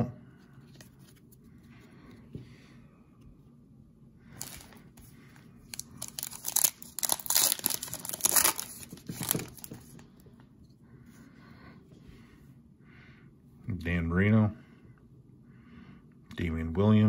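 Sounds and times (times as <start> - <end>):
wrapper tearing and crinkling: 4.4 - 4.8, 5.6 - 9.7.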